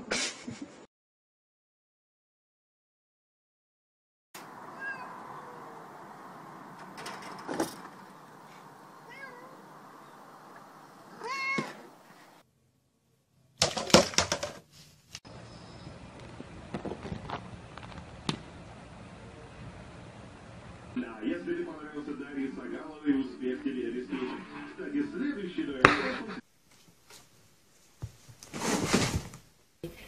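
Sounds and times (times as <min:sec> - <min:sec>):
cat meowing: 0:04.5 - 0:06.0, 0:09.0 - 0:10.1, 0:11.1 - 0:11.9.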